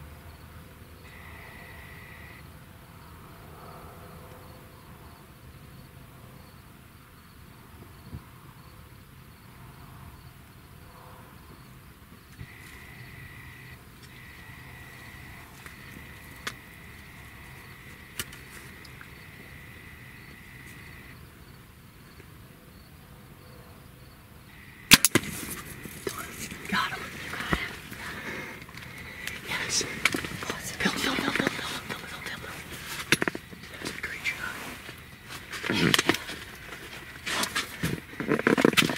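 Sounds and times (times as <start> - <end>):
faint insect buzz: 1.0 - 4.8, 11.6 - 38.9
small ticks: 12.3 - 21.1
arrow striking crack: 24.9 - 25.6.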